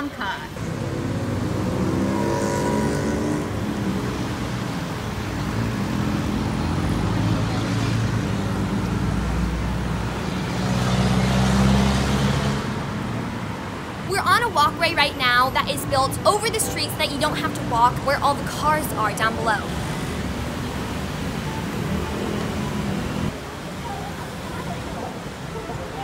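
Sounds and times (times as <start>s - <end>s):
road traffic noise: 0.0s - 26.0s
vehicle passing close: 0.6s - 14.0s.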